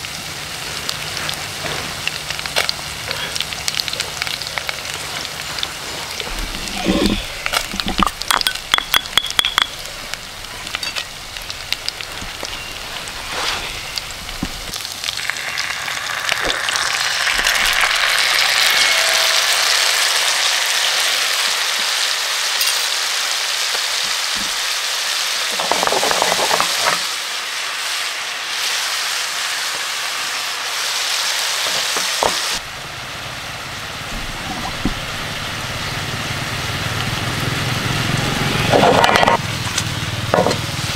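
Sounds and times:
fish frying in hot oil: 0.0 - 40.9
spoon clicking in stone mortar: 8.0 - 9.8.

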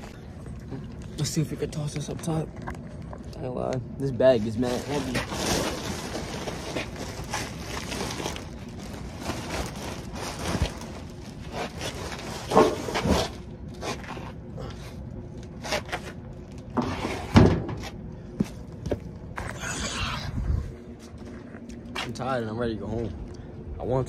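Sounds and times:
plastic trash bag rustling: 4.2 - 14.4.

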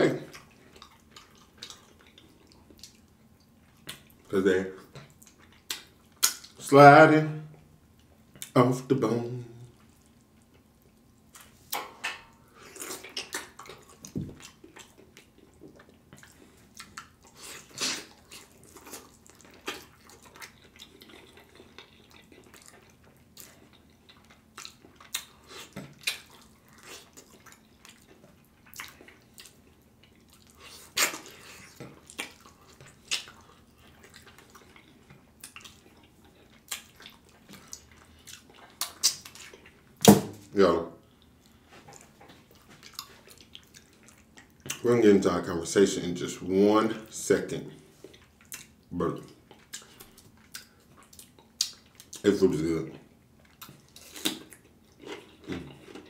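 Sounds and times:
wet mouth eating sounds: 12.5 - 40.1, 41.1 - 44.8, 47.9 - 52.3, 52.9 - 56.0.

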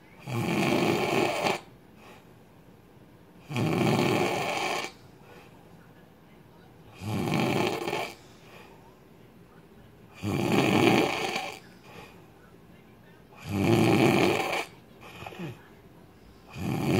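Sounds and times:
man snoring loudly: 0.2 - 1.7, 3.5 - 4.9, 7.0 - 8.2, 10.2 - 11.6, 13.4 - 14.7, 16.5 - 16.9.

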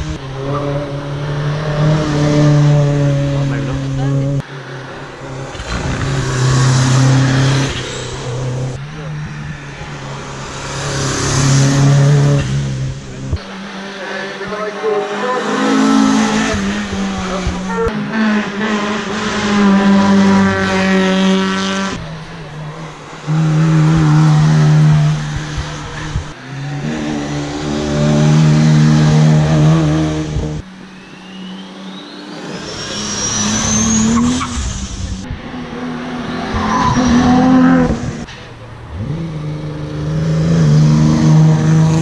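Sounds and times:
car engines accelerating hard: 0.0 - 42.0
high rising whine: 30.6 - 37.1.

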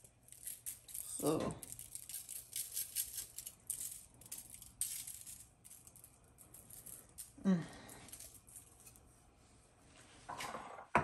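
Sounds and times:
seasoning shaker rattling: 0.0 - 7.4.

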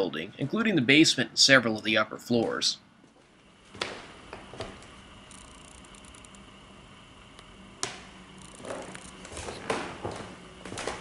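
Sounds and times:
faint steady hum: 0.0 - 11.0
sharp clicks: 5.3 - 6.4, 7.8 - 9.2
footsteps on wooden floorboards: 8.6 - 11.0.

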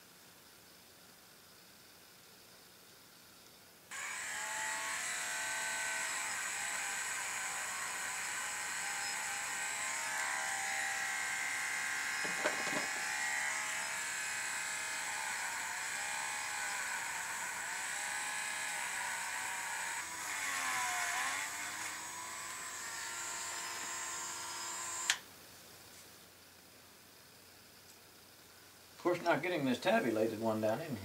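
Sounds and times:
rotary tool whining on metal: 3.9 - 25.2.

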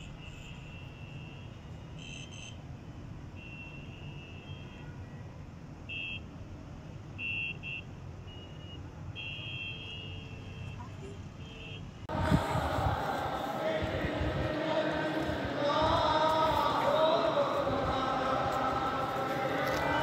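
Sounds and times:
large crowd noise: 12.1 - 20.0.

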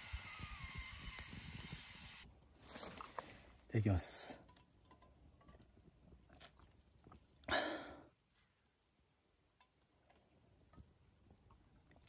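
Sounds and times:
mouth and swallowing sounds: 6.2 - 7.4
breathy sound: 7.5 - 8.1.

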